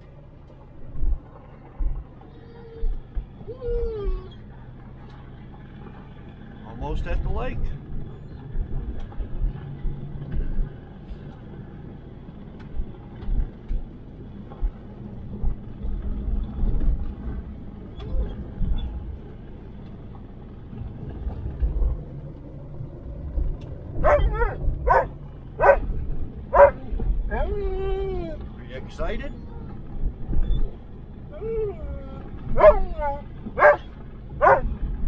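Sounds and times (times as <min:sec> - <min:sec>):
road and engine rumble in car cabin: 0:00.0 - 0:35.0
dog yipping: 0:24.0 - 0:25.9, 0:26.6 - 0:28.4, 0:31.4 - 0:34.7.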